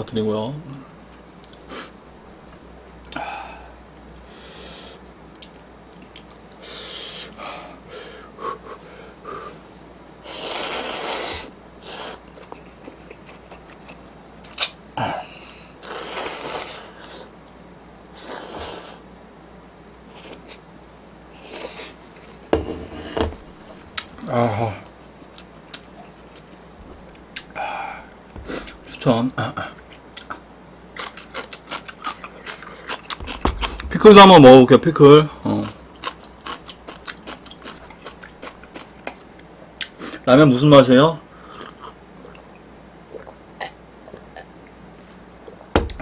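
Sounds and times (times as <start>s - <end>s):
eating clicks and smacks: 5.3s - 6.6s, 29.7s - 34.0s
person slurping noodles: 10.3s - 12.2s, 15.8s - 17.3s.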